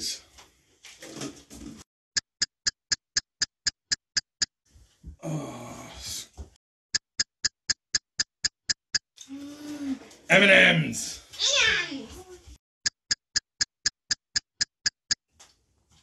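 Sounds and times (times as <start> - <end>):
prize wheel ticking: 2.2 - 4.5, 6.9 - 9.0, 12.8 - 15.2.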